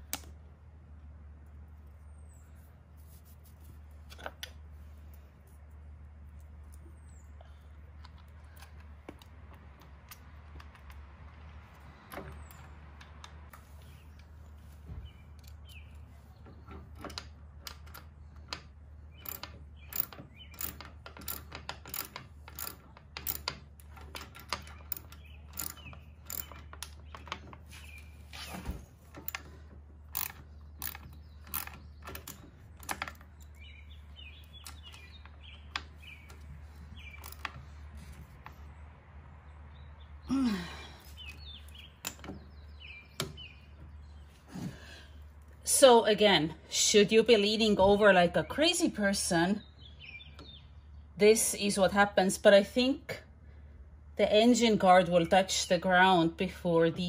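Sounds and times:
ratchet wrench clicking: 19.2 - 27.0, 30.1 - 33.2.

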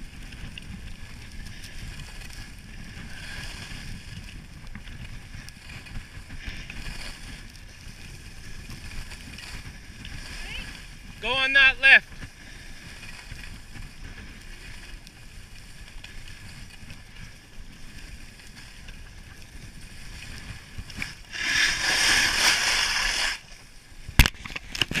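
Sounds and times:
skis scraping hard: 0.0 - 24.2
skis running over snow: 0.0 - 25.0
wind on microphone: 0.0 - 25.0.

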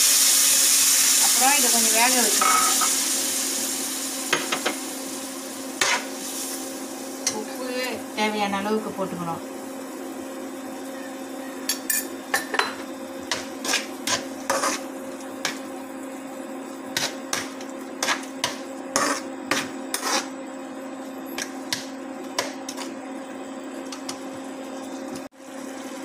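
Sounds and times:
metal spoon scraping in pan: 5.8 - 6.1, 13.3 - 15.6, 17.0 - 20.4.

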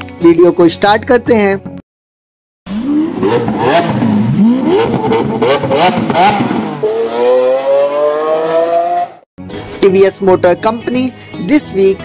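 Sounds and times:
exhaust cracks: 2.7 - 7.3
sports car engine revving: 2.7 - 9.2.

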